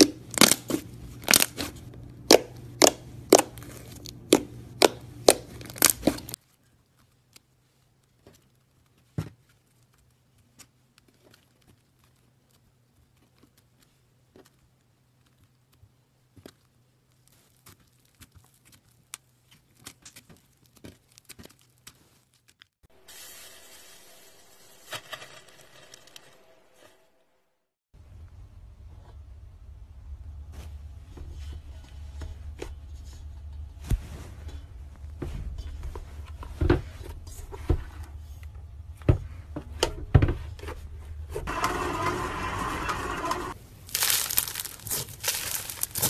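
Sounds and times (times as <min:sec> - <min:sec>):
slime popping: 0:00.0 - 0:06.4, 0:43.9 - 0:46.0
slime tearing and crackling: 0:00.0 - 0:06.4, 0:16.5 - 0:22.8, 0:43.7 - 0:46.0.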